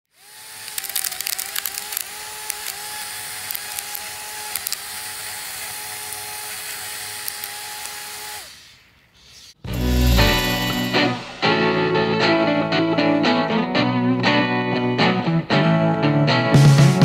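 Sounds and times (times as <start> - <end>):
electric motor whining: 0.1 - 8.7.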